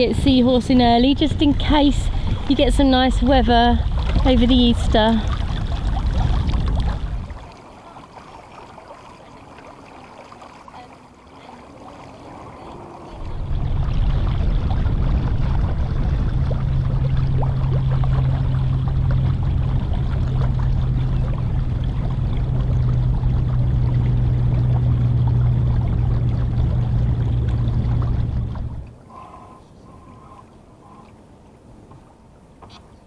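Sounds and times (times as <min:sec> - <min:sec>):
heavy low rumble: 0:00.0 - 0:07.5, 0:13.0 - 0:29.0
water rushing along hull: 0:00.0 - 0:33.0
steady low hum: 0:12.2 - 0:32.2.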